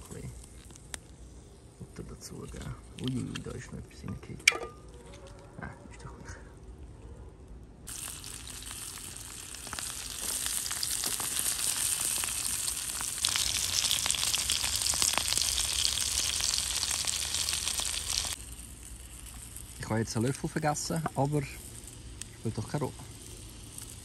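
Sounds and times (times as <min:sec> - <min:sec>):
sausages sizzling in a pan: 0:07.9 - 0:24.0.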